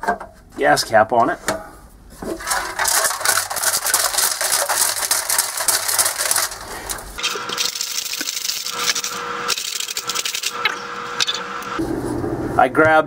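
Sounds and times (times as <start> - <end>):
metal nuts rattling in steel tank: 2.3 - 8.6.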